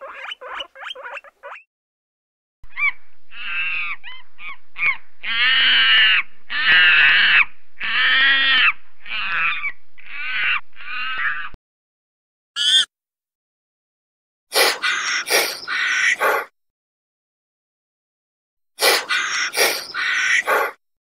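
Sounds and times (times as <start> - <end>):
animal giving harsh calls: 2.7 - 11.6, 12.6 - 12.9, 14.5 - 16.5, 18.8 - 20.8.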